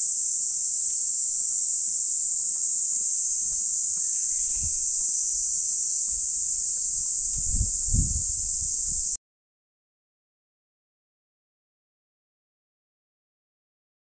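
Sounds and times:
insects calling: 0:00.0 - 0:09.2.

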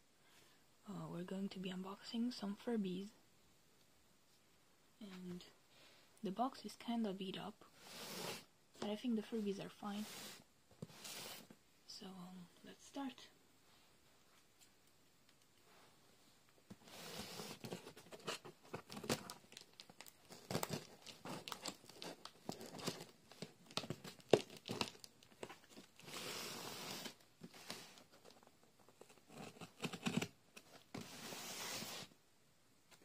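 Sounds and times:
packing tape tearing: 0:18.8 - 0:27.2
cardboard flaps scraping: 0:30.9 - 0:32.1.

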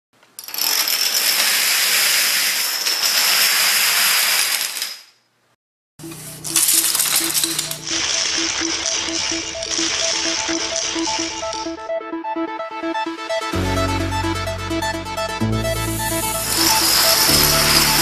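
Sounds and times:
dominoes toppling clatter: 0:00.4 - 0:05.2, 0:06.5 - 0:11.6, 0:16.4 - 0:18.0
music: 0:06.0 - 0:18.0.

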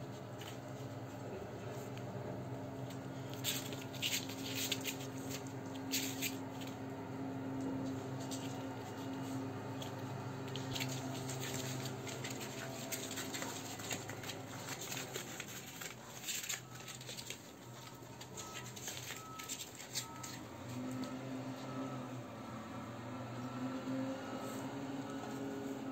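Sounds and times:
steady low hum: 0:00.0 - 0:25.9
puppy paws scratching on cardboard: 0:00.1 - 0:02.0, 0:02.8 - 0:06.8, 0:07.8 - 0:21.5.

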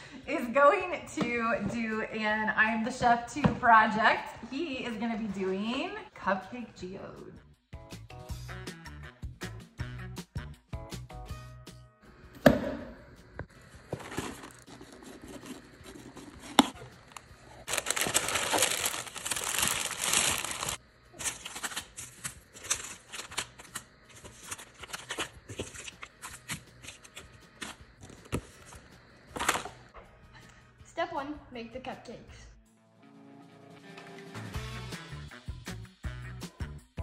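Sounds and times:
tissue paper rustling: 0:13.9 - 0:27.8
plastic wrapping crinkling: 0:13.9 - 0:28.8.

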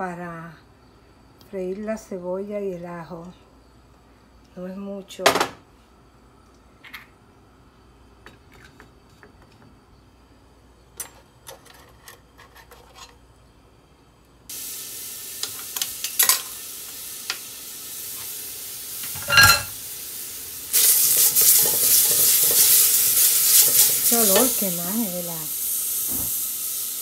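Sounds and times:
garlic sizzling in oil: 0:14.5 - 0:27.0
ringing scrape against pot: 0:19.2 - 0:19.7.

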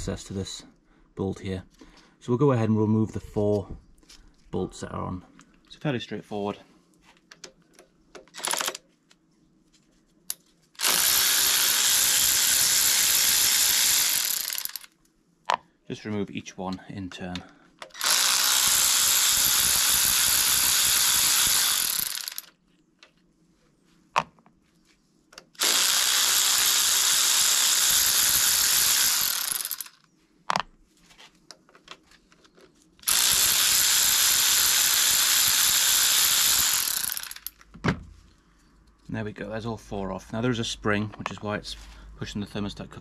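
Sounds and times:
power ratchet running: 0:08.4 - 0:08.8, 0:10.8 - 0:14.9, 0:17.8 - 0:22.5, 0:25.6 - 0:30.0, 0:33.0 - 0:37.6.

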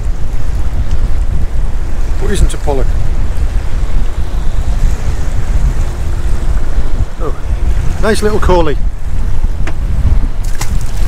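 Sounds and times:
wind buffeting microphone: 0:00.0 - 0:11.0
sharp knocks on boat: 0:09.6 - 0:09.8.

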